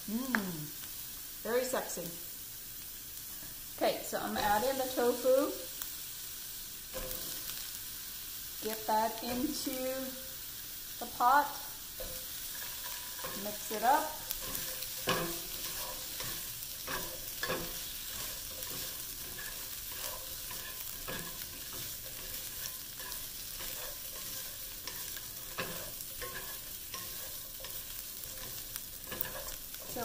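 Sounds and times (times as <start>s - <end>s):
tofu sizzling in oil: 0.0s - 30.0s
utensils scraping and knocking pan: 6.9s - 7.5s, 12.0s - 30.0s.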